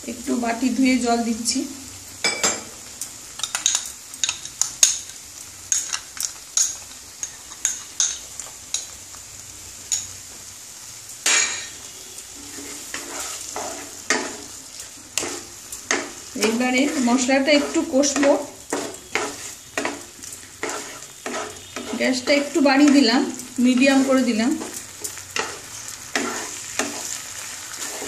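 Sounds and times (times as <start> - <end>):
sizzling in a pan: 0.0 - 28.0
spatula scraping a pan: 12.4 - 28.0.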